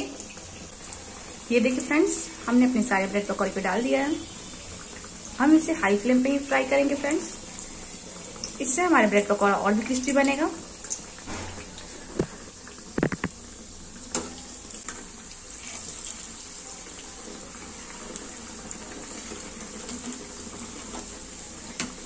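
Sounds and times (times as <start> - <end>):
food deep-frying in oil: 0.0 - 22.0.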